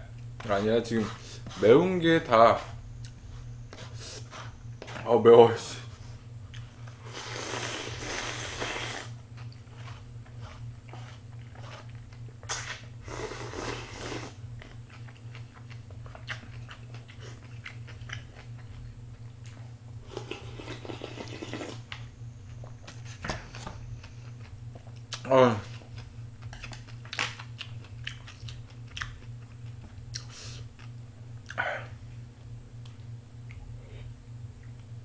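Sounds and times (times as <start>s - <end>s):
steady low hum: 0.0s - 35.0s
chewing and eating noises: 5.8s - 32.0s.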